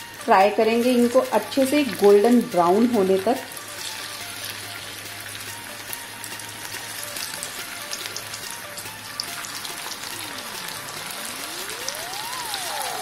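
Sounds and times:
potatoes sizzling in hot oil: 0.0 - 13.0
tone gliding down and up: 9.5 - 13.0.

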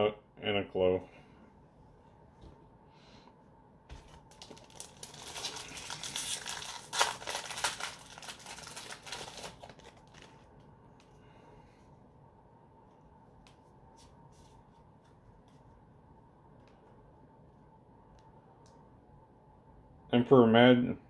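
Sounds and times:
foil wrapper crinkling and tearing: 4.1 - 10.5.

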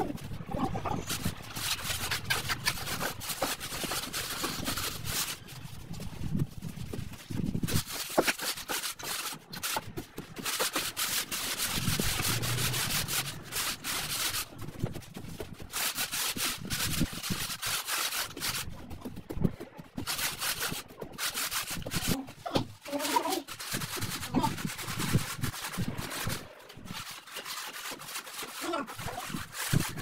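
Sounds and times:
board scraping sand and cement: 0.0 - 30.0.

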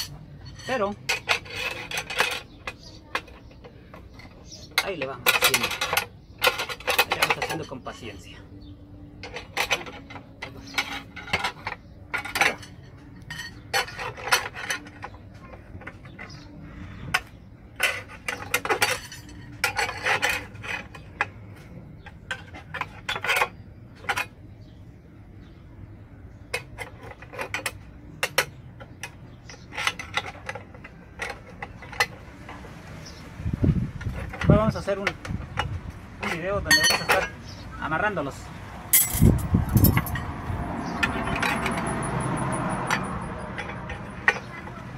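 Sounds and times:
metal scraping: 0.0 - 8.4, 9.0 - 24.8, 26.2 - 44.9
metal rod clinking: 34.2 - 37.6, 38.9 - 44.8.

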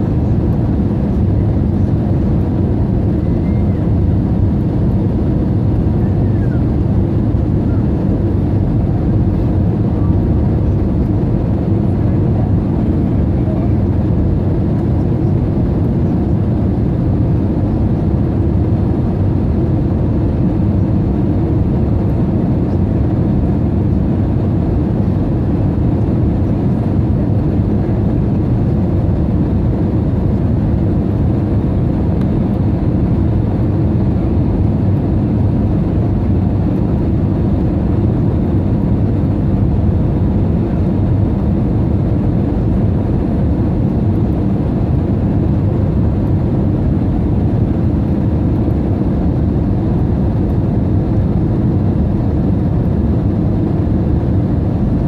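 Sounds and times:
airliner cabin rumble: 0.0 - 55.0.

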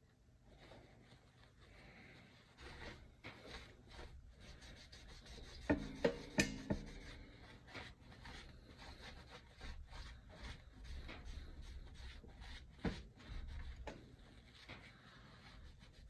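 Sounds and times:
cloth rubbing on wood: 0.5 - 16.0.

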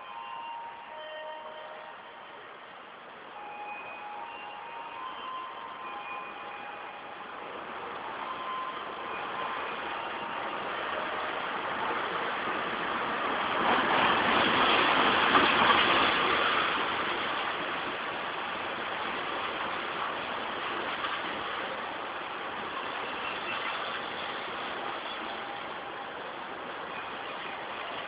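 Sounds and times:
train rolling past: 0.0 - 28.0.

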